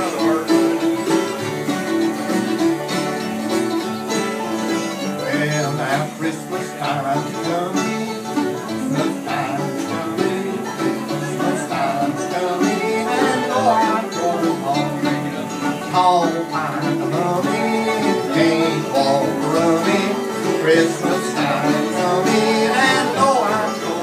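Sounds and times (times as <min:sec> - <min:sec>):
acoustic guitars picking: 0:00.0 - 0:24.0
mandolin picking: 0:00.0 - 0:24.0.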